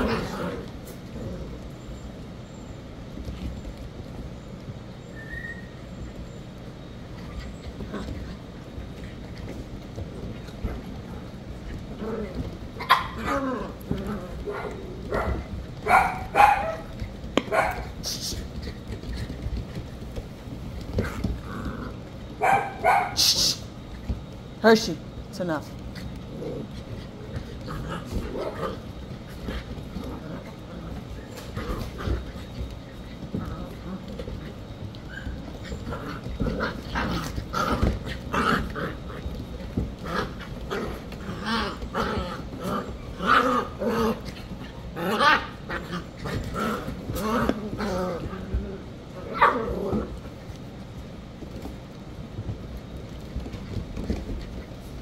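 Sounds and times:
puppies scuffling: 0:00.0 - 0:55.0
puppies yipping and barking: 0:12.8 - 0:18.0, 0:34.1 - 0:43.8.

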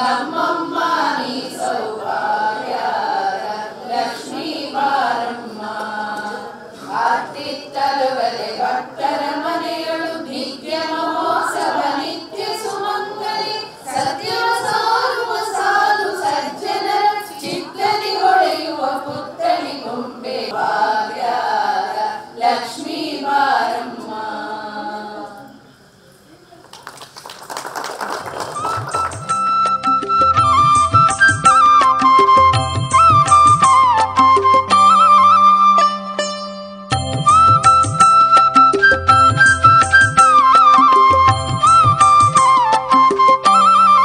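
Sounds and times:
voices singing a chant: 0:00.0 - 0:26.0.

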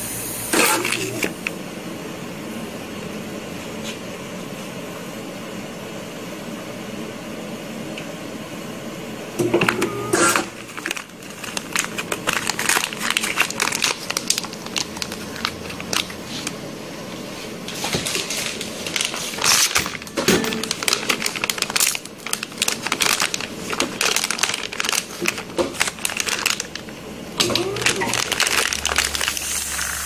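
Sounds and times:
plastic bags crinkling: 0:10.3 - 0:16.6, 0:17.6 - 0:30.0.

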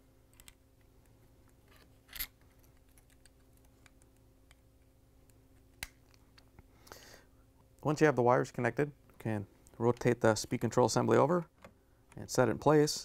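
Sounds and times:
faint steady hum: 0:00.0 - 0:13.0
connectors clicking onto tabs: 0:00.3 - 0:01.6.

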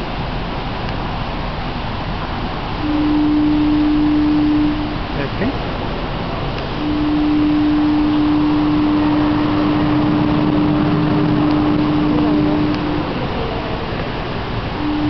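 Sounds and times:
steady hum: 0:00.0 - 0:15.0
faint voices: 0:07.7 - 0:15.0.

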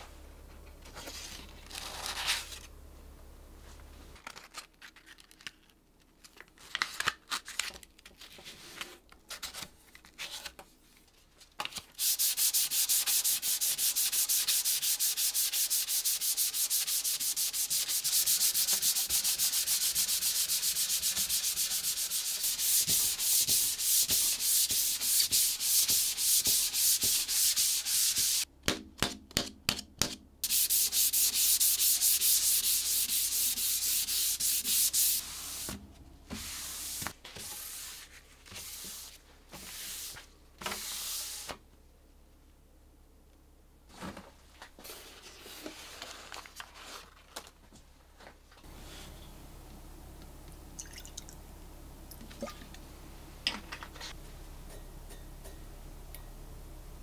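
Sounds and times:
sandpaper rubbing on wood: 0:12.0 - 0:28.4, 0:30.4 - 0:35.7.

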